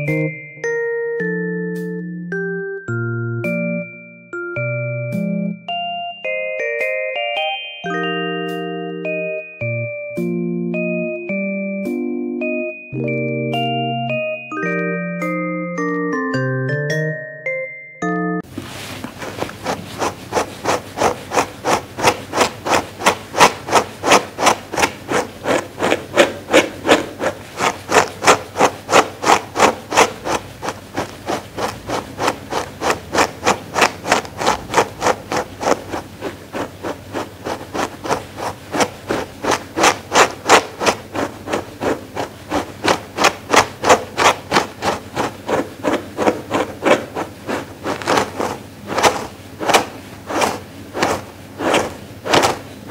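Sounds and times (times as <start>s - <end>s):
brush stroking through fur: 18.5s - 52.9s.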